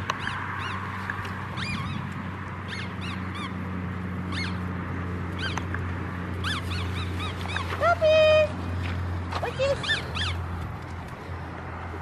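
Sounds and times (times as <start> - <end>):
puppies squealing and whining: 0.1 - 3.6, 4.2 - 4.7, 5.3 - 5.7, 6.4 - 8.0, 9.6 - 10.5.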